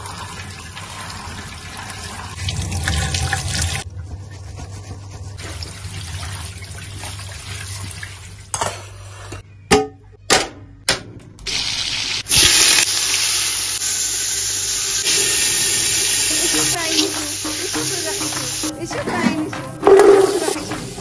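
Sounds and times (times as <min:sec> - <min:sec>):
meat sizzling in hot oil: 0:11.5 - 0:18.7
tap water running into strainer: 0:15.0 - 0:18.7.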